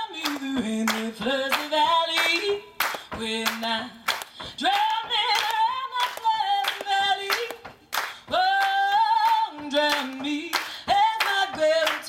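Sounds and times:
hand claps: 0.2s - 12.0s.

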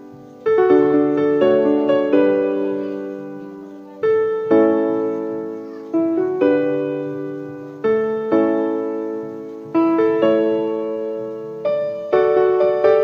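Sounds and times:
gentle piano chords: 0.0s - 13.0s.

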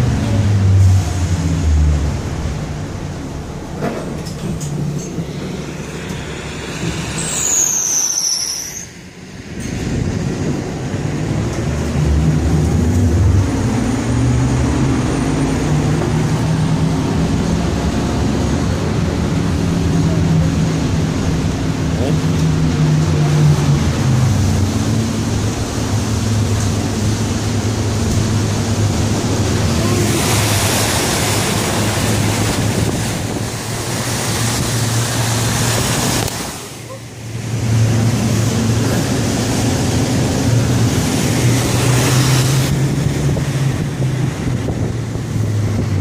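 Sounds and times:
bus engine and road rumble: 0.0s - 46.0s
high squeal falling in pitch: 5.4s - 9.2s.

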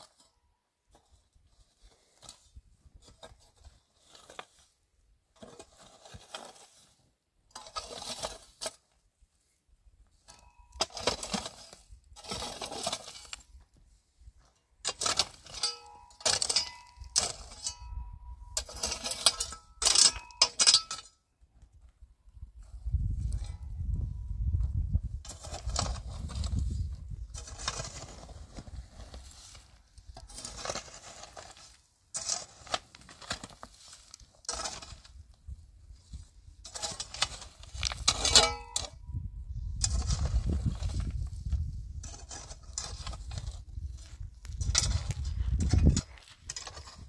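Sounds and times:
hard objects clinking and scraping: 14.8s - 21.2s, 39.8s - 47.0s.

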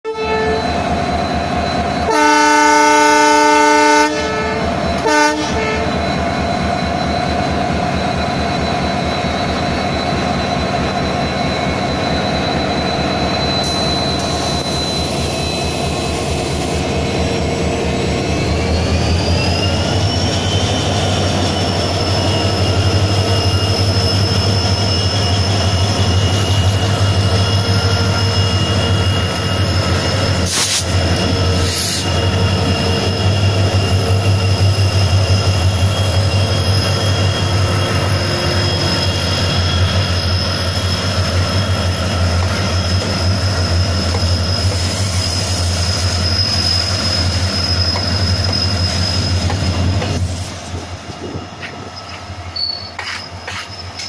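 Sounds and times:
train horn blast: 0.1s - 0.7s, 2.1s - 5.9s.

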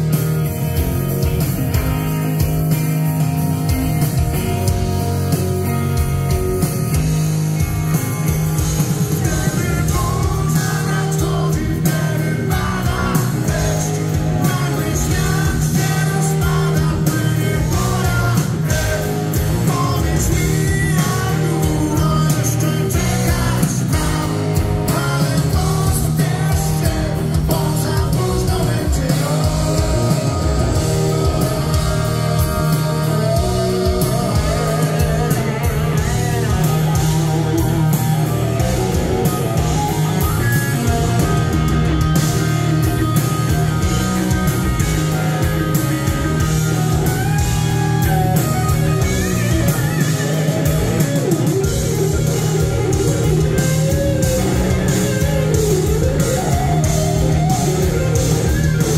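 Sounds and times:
bass guitar: 0.0s - 58.9s
drums: 0.0s - 58.9s
electric guitars: 0.0s - 58.9s
male lead vocal: 9.0s - 41.2s.

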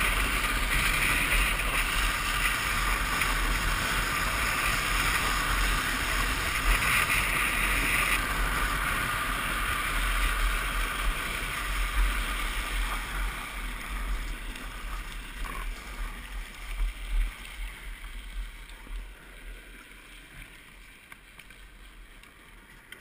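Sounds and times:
wheels rolling on asphalt: 0.0s - 23.0s.

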